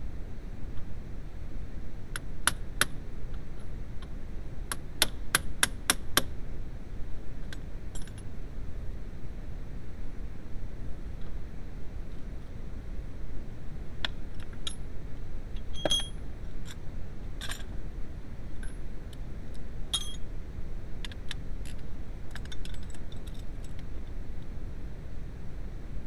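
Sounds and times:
metal hand tools clinking: 15.8s - 16.2s, 20.0s - 20.2s.

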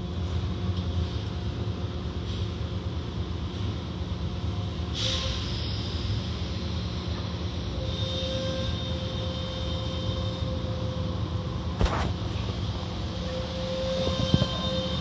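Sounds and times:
car wash machinery and water rumble: 0.0s - 15.0s
steady whine: 5.8s - 15.0s
sharp thump: 11.8s - 12.2s.

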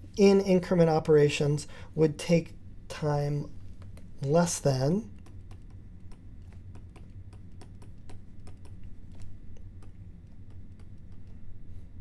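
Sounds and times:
low hum: 0.0s - 12.0s
stylus tapping on tablet: 5.1s - 11.4s.

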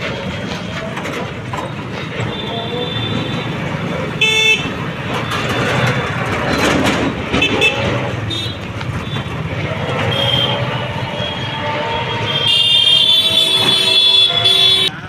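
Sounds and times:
street traffic rumble: 0.0s - 15.0s
vehicle horn toot: 4.2s - 4.7s, 10.0s - 14.9s.

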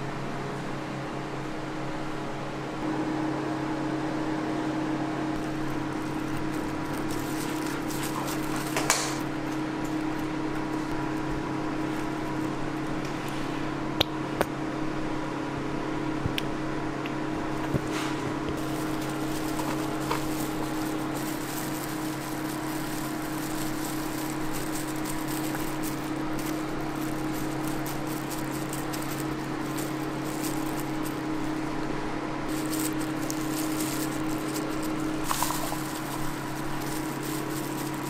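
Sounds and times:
kitchen machinery humming: 0.0s - 38.0s
utensils clicking and tapping: 6.1s - 10.3s, 18.5s - 31.6s, 32.5s - 38.0s.

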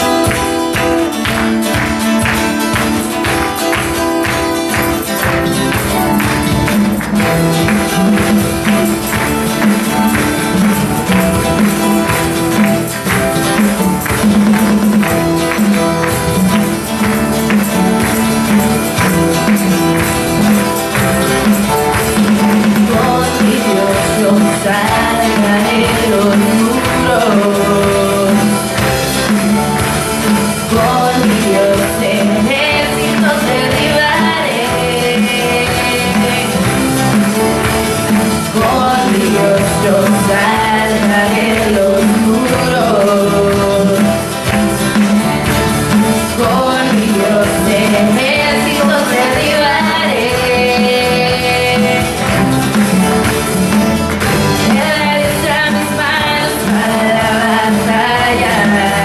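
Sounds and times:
tambourine shaking: 0.0s - 59.0s
worship band playing: 0.0s - 59.0s
voices singing melody: 22.5s - 29.1s, 30.4s - 37.1s, 38.4s - 44.3s, 46.4s - 52.6s.

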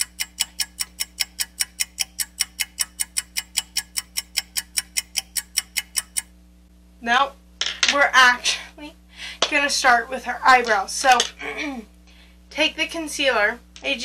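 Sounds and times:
rapid clock-like ticking: 0.0s - 6.3s.

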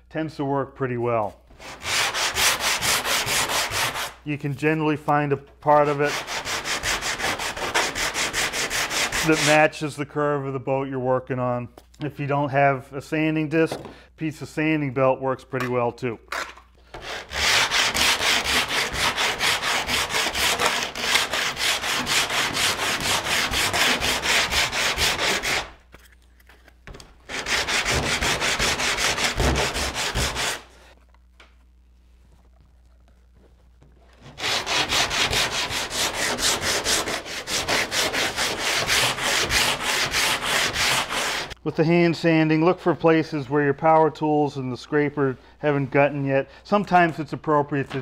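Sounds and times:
sandpaper sanding wood: 1.6s - 4.2s, 5.8s - 9.6s, 17.0s - 25.8s, 27.3s - 30.9s, 34.2s - 41.6s.

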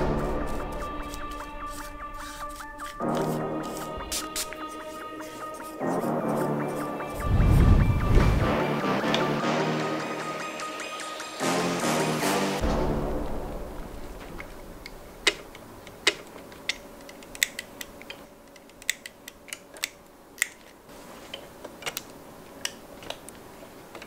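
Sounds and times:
background music: 0.0s - 15.4s
plastic and metal parts clicking: 14.2s - 24.0s.

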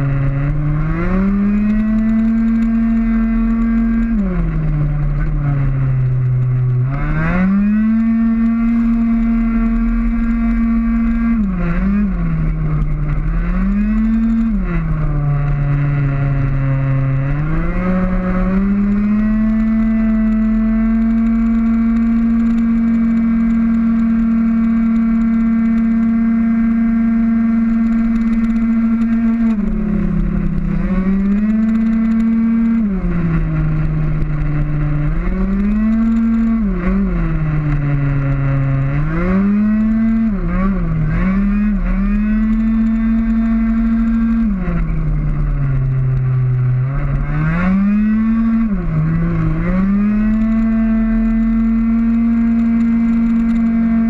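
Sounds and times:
two-stroke scooter engine revving: 0.0s - 54.0s.

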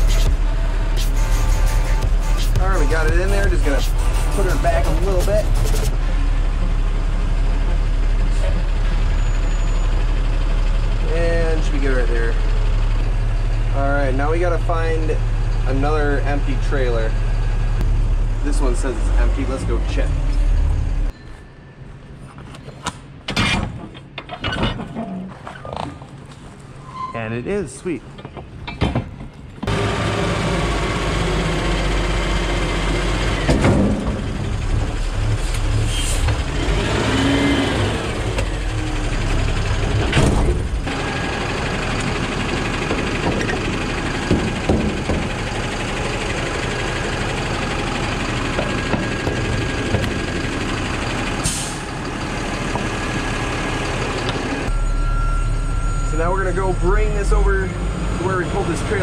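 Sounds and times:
diesel truck engine running: 0.0s - 21.1s, 29.6s - 59.0s.

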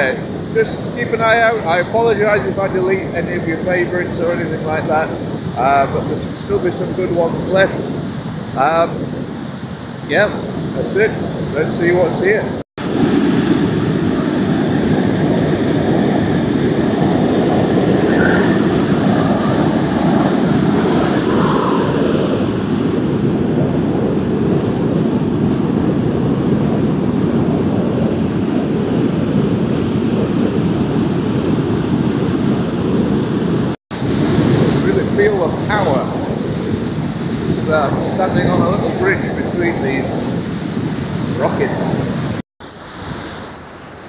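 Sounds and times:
waterfall rushing: 0.0s - 8.9s, 9.6s - 23.0s, 34.0s - 36.4s, 37.5s - 40.4s.

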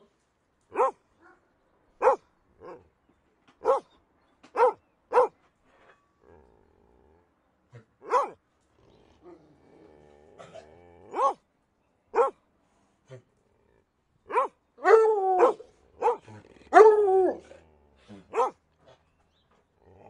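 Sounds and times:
dog barking: 0.7s - 1.4s, 2.0s - 2.8s, 3.6s - 3.9s, 4.5s - 5.4s, 8.0s - 8.4s, 10.4s - 11.4s, 12.1s - 12.4s, 14.3s - 17.0s, 18.3s - 18.6s.

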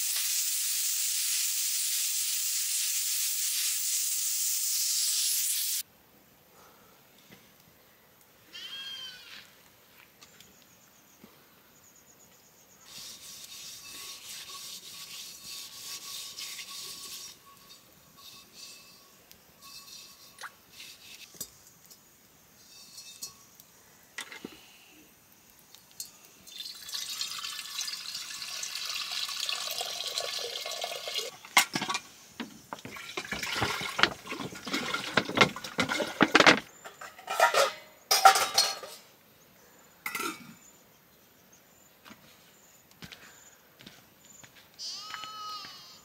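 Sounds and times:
water pouring into a vessel: 26.5s - 31.4s, 32.8s - 35.9s
dishes clattering: 31.5s - 32.1s, 32.8s - 39.0s
water sloshing and splashing: 32.7s - 36.3s.

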